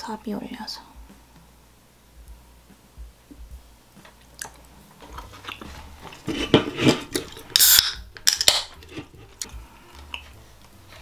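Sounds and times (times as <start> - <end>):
beer can cracking open: 4.1 - 10.3
person chewing: 4.2 - 10.4
gas hissing from can: 6.3 - 9.1.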